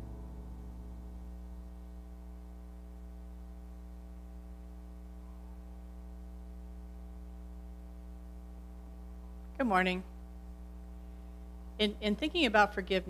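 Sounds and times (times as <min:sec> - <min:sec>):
piano note tail: 0:00.0 - 0:01.3
electrical mains hum: 0:00.0 - 0:13.0.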